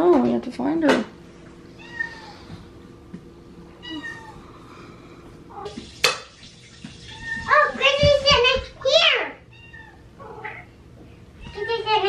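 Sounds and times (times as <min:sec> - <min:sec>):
cat meowing: 0:01.8 - 0:02.4, 0:03.8 - 0:04.4, 0:09.5 - 0:10.7.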